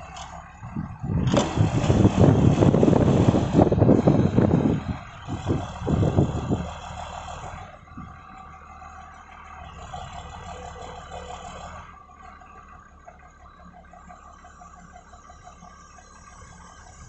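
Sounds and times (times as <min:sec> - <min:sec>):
hydraulics lifting: 0:00.0 - 0:12.4
diesel engine revving: 0:00.0 - 0:17.0.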